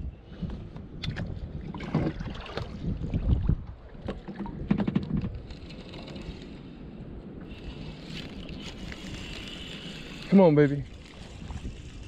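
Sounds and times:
wind on microphone: 0:00.0 - 0:12.0
gear knocking on plastic kayak hull: 0:04.0 - 0:05.4.

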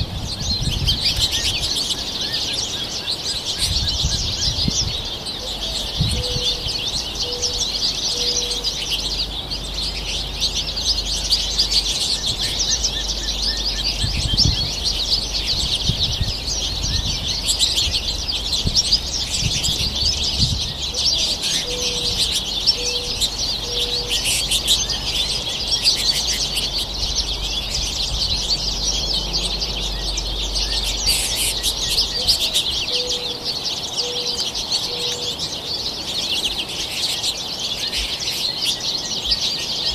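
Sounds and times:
finches twittering: 0:00.0 - 0:39.9
dove cooing: 0:05.4 - 0:09.0, 0:20.2 - 0:25.2, 0:31.0 - 0:35.4.

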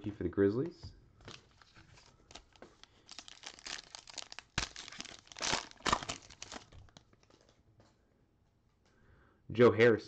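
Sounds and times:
plastic wrapper ripping: 0:01.2 - 0:07.5
plastic wrapper crinkling: 0:01.2 - 0:07.6.

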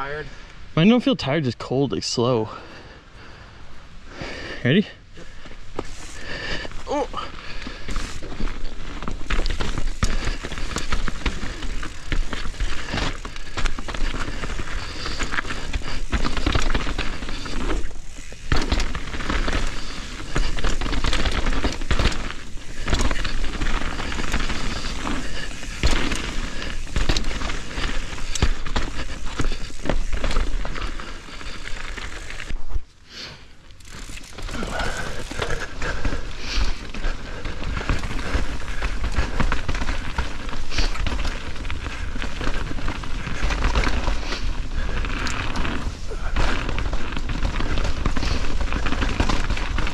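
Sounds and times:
bike rattling: 0:02.4 - 0:49.9
bike tyres clattering over dirt: 0:02.4 - 0:49.9.

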